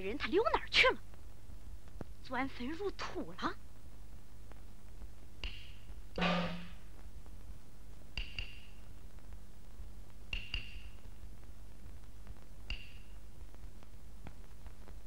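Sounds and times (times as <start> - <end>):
high metallic percussion pings: 6.2 - 6.8.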